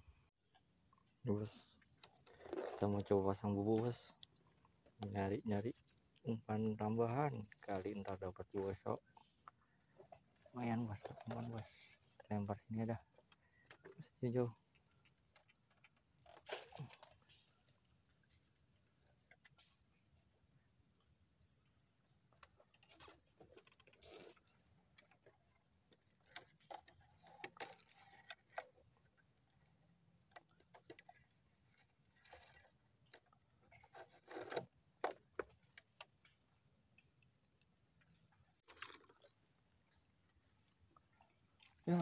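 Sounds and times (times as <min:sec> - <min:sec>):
rope and gear rustling: 0:33.7 - 0:34.7.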